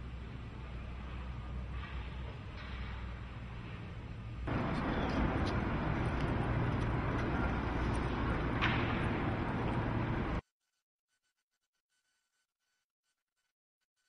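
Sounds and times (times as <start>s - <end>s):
noisy room ambience: 0.0s - 10.4s
low hum: 2.9s - 10.4s.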